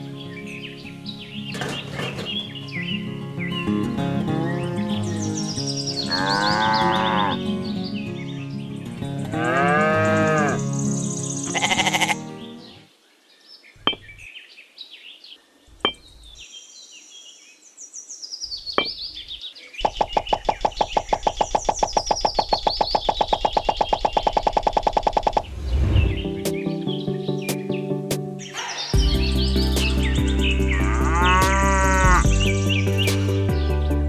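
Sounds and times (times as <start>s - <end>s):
farm animals bleating and mooing: 4.1s - 7.8s, 9.0s - 10.8s, 11.4s - 12.8s, 30.6s - 32.6s
fast even pulsing: 20.0s - 26.4s.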